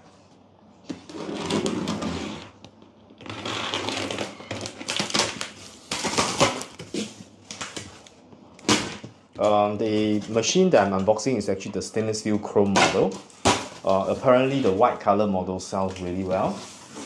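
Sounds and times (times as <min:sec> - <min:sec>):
cardboard rustling: 0:12.6 - 0:17.0.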